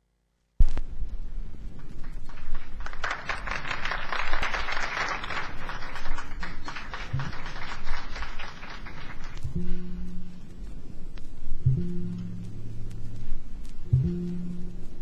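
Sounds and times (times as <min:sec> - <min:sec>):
audience applauding: 0:01.8 - 0:09.4
low plucked note: 0:09.4 - 0:15.0.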